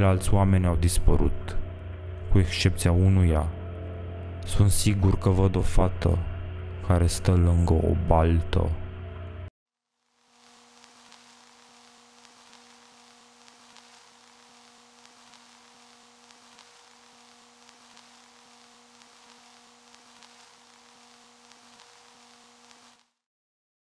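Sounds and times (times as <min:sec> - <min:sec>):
faint low drone: 0:00.0 - 0:09.5
soft hiss: 0:09.9 - 0:23.2.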